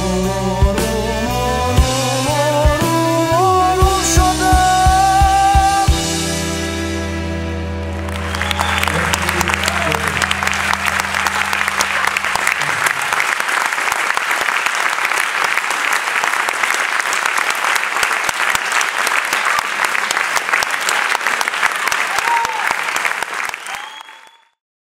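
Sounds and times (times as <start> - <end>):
band holding low note: 0.0 - 13.3
audience applauding: 7.8 - 24.6.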